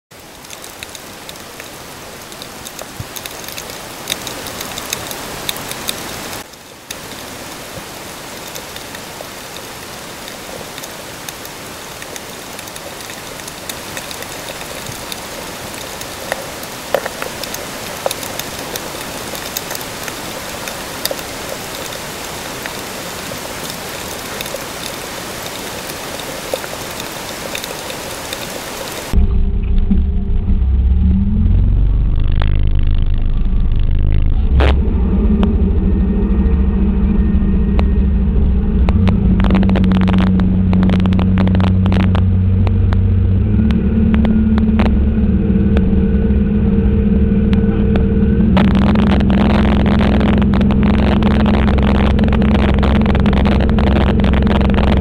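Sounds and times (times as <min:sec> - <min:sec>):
underwater crackling hiss: 0:00.4 - 0:29.2.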